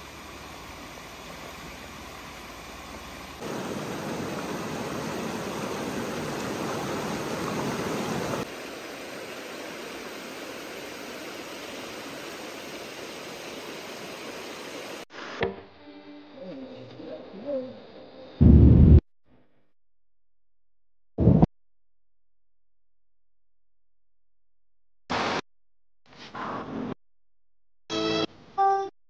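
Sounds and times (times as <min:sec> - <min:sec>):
river water running over rocks: 0:00.1 - 0:15.0.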